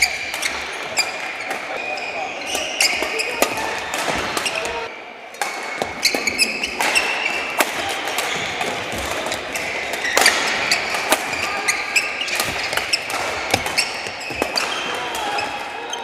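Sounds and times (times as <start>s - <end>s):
shoes squeaking on court floor: 0.0s - 4.9s, 5.8s - 7.5s, 8.3s - 16.0s
rackets striking shuttlecock: 2.5s - 15.2s.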